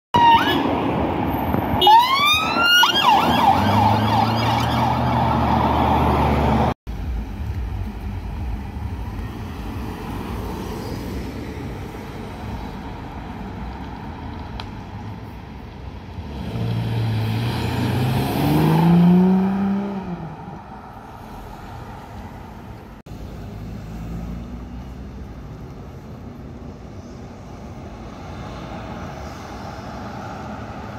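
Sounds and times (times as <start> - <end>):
police siren: 0.2 - 0.7, 1.8 - 6.7
car approaching: 0.8 - 30.9
car engine revving hard: 16.2 - 20.4.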